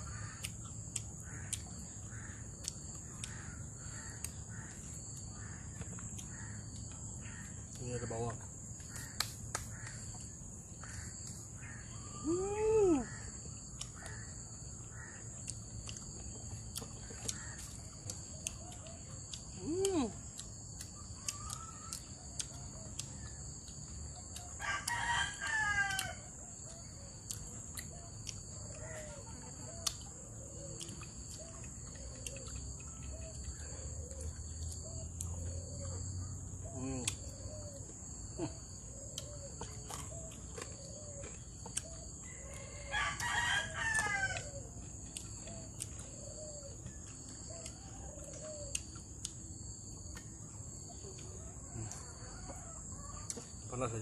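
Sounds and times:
rooster crowing: 0:24.5 - 0:26.3, 0:42.2 - 0:44.6.

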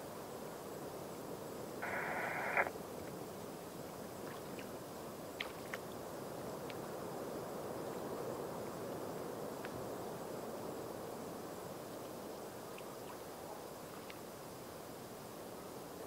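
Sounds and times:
distant harbour ambience: 0:01.6 - 0:02.9
radio squelch click: 0:01.8 - 0:02.7
radio static burst: 0:01.8 - 0:02.7
faint ticks: 0:01.8 - 0:03.2, 0:06.6 - 0:06.9, 0:14.0 - 0:14.3.

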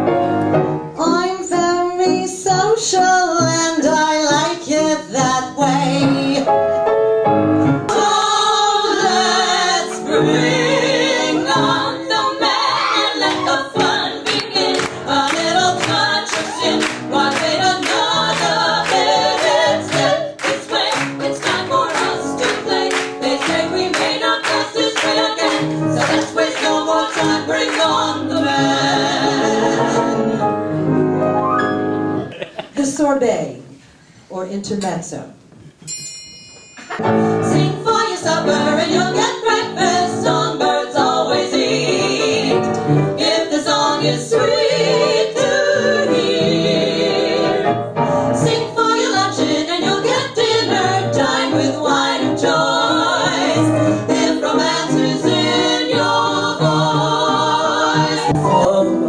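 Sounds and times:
piano accompaniment: 0:00.0 - 0:32.6, 0:36.9 - 0:59.0
female vocal trio singing: 0:07.9 - 0:30.5, 0:37.4 - 0:47.8, 0:48.4 - 0:59.0.

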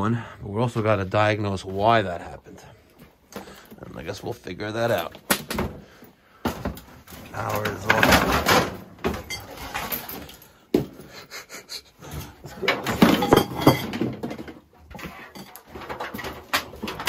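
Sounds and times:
stored items clattering and knocking: 0:03.0 - 0:11.3, 0:11.9 - 0:17.0.

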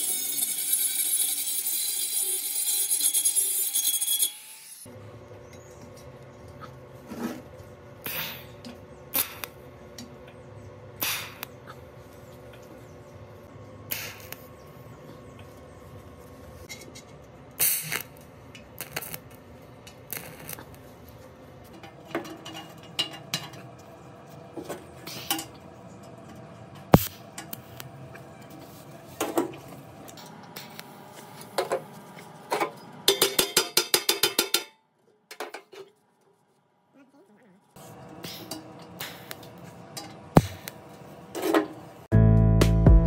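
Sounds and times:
hand tools on metal parts: 0:00.0 - 0:04.9, 0:19.8 - 0:36.6.

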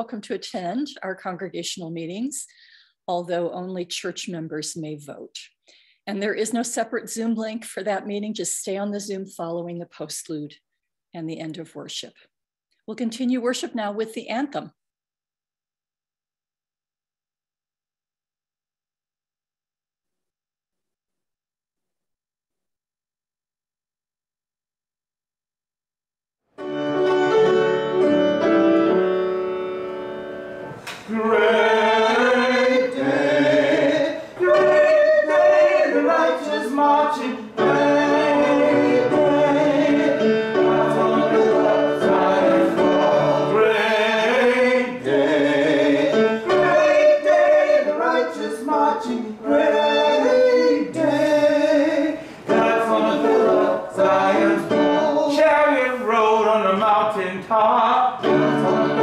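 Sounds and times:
keyboard accompaniment: 0:26.5 - 0:48.9, 0:52.4 - 0:55.5, 0:58.2 - 0:59.0
group of voices singing: 0:31.0 - 0:59.0.

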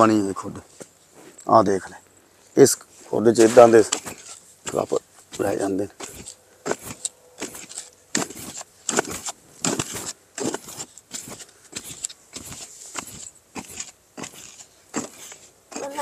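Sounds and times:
sand trickling: 0:02.6 - 0:16.0
digging tool chopping into soil: 0:03.4 - 0:16.0.

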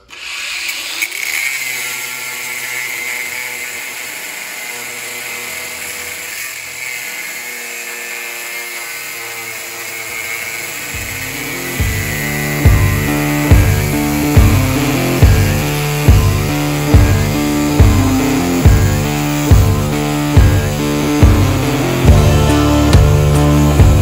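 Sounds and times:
angle grinder cutting steel: 0:00.0 - 0:24.0
rock music with heavy beat: 0:11.1 - 0:24.0.

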